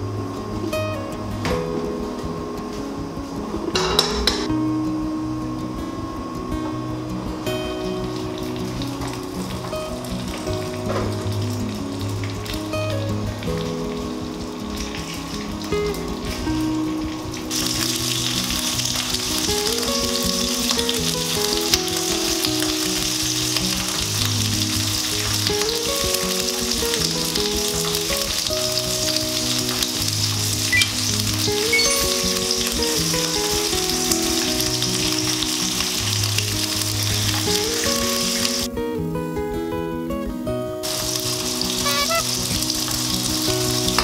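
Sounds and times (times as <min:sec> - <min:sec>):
soft background music: 0:00.0 - 0:44.0
sausages sizzling in a frying pan: 0:17.0 - 0:38.7, 0:40.8 - 0:44.0.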